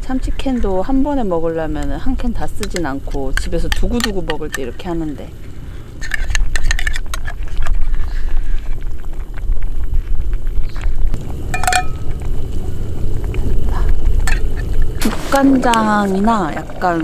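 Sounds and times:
spoon scraping tin can: 0:06.0 - 0:07.7
ringing metal clink: 0:11.5 - 0:12.0.

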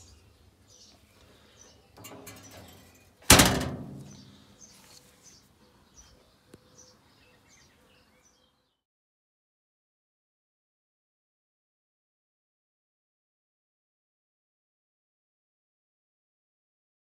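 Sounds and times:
birds chirping: 0:00.0 - 0:08.8
metal smoker lid shutting with thunk: 0:02.0 - 0:04.4.

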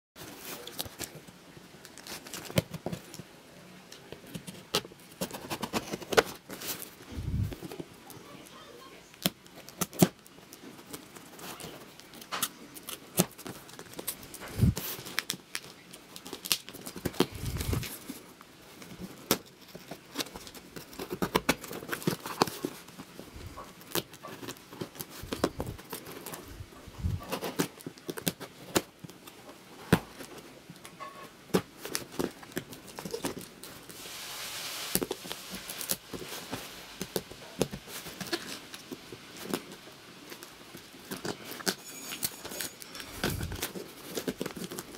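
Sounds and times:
plastic crinkling: 0:00.2 - 0:44.9.

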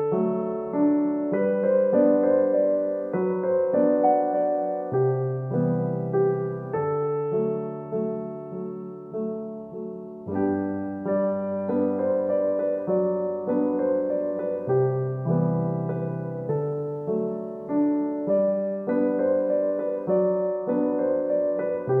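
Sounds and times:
piano music: 0:00.0 - 0:22.0.

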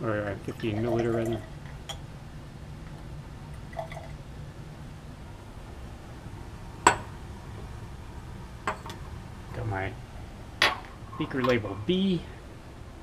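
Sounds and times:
low room hum: 0:00.0 - 0:13.0
glassware clinking: 0:06.8 - 0:07.2, 0:08.7 - 0:09.0, 0:10.6 - 0:11.6.

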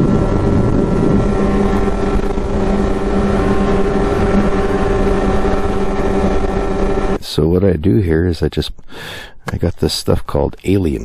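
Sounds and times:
snowmobile engine cruising: 0:00.0 - 0:07.3.

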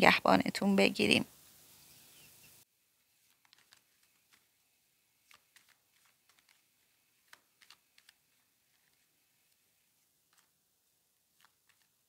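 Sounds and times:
cards being shuffled: 0:03.1 - 0:12.0.

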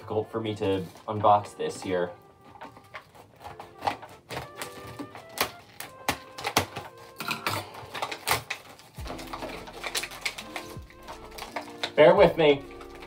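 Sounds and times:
faint background music: 0:00.0 - 0:13.0.

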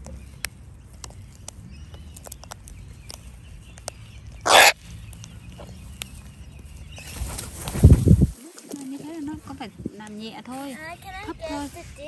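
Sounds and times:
cockatoo screech: 0:04.5 - 0:04.8.

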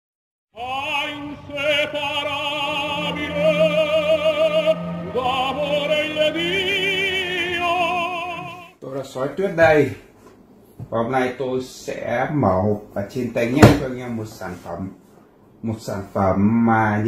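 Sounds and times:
operatic singing with vibrato: 0:00.5 - 0:08.8
music: 0:00.6 - 0:08.8.

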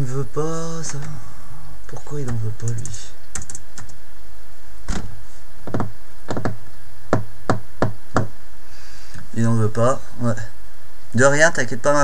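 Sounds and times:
keyboard keystrokes: 0:02.2 - 0:04.0.

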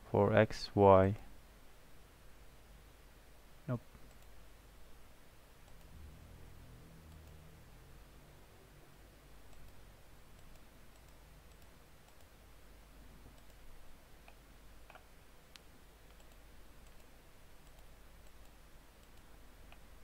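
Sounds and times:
faint room hiss: 0:00.0 - 0:20.0
computer mouse clicks: 0:04.0 - 0:04.4, 0:05.6 - 0:06.0, 0:07.1 - 0:07.4, 0:09.4 - 0:12.3, 0:13.3 - 0:13.6, 0:14.2 - 0:19.9.

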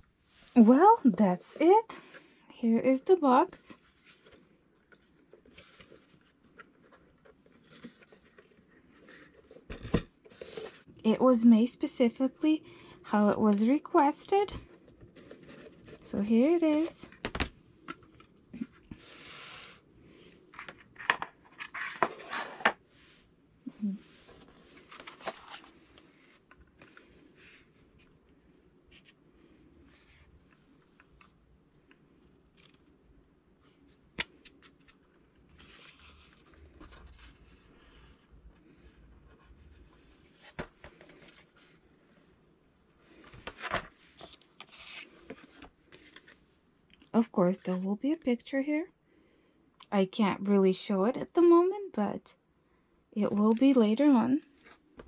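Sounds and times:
paper rustle: 0:24.3 - 0:27.2, 0:43.1 - 0:46.4.

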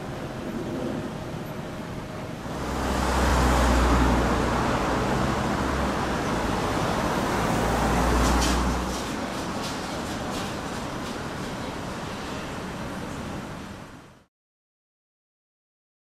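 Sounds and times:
vehicle engine rumble: 0:00.0 - 0:12.1
road noise: 0:00.0 - 0:14.2.

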